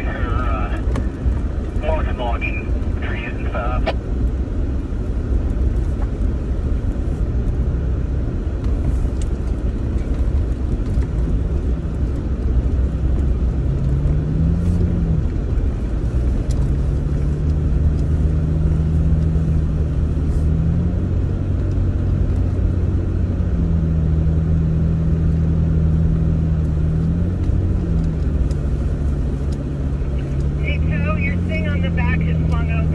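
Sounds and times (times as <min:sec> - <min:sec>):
road rumble: 0:00.0 - 0:32.9
vehicle engine: 0:00.0 - 0:32.9
gravel ticks and rattles: 0:05.2 - 0:20.4, 0:21.4 - 0:22.7, 0:26.6 - 0:30.6.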